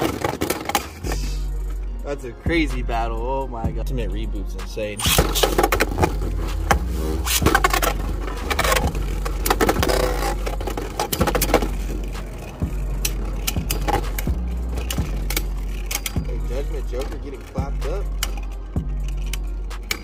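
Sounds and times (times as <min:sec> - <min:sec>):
spinning tops whirring and grinding: 0:05.0 - 0:20.0.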